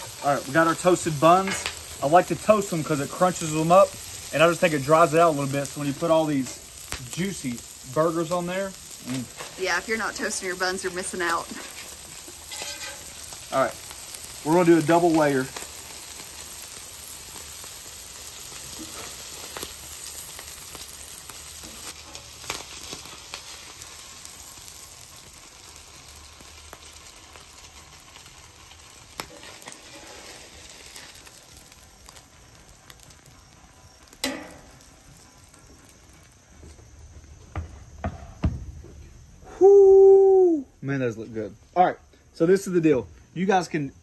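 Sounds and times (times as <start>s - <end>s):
metal spatula scraping griddle: 0.0s - 1.8s, 11.5s - 13.3s, 18.7s - 19.4s, 29.2s - 31.2s
burger patties sizzling on griddle: 0.0s - 44.0s
knocks: 37.5s - 39.0s.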